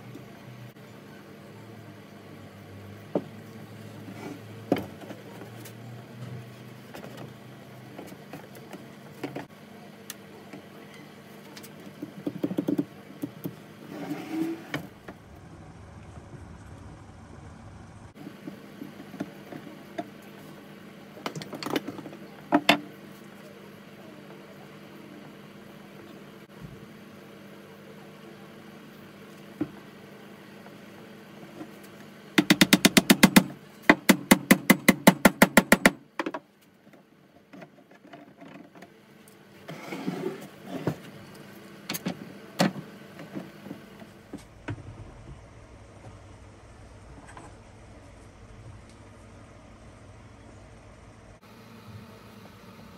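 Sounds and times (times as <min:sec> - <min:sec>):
steady low hum: 0:00.0 - 0:37.7.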